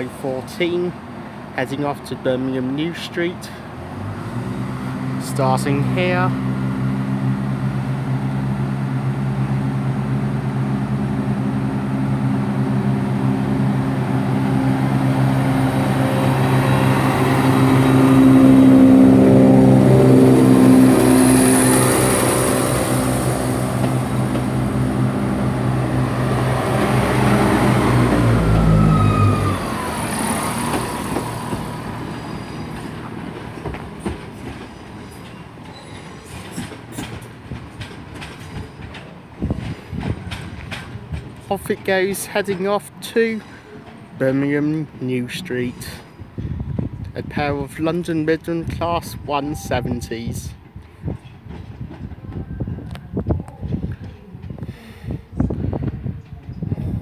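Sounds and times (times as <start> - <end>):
diesel train engines droning: 0.0 - 53.2
train wheels clicking over rail joints: 30.4 - 44.1.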